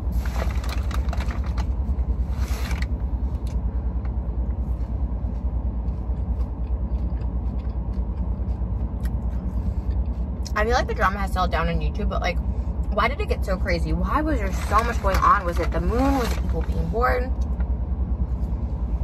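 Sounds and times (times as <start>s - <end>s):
low car cabin rumble: 0.0s - 19.0s
chips being eaten: 5.3s - 10.4s.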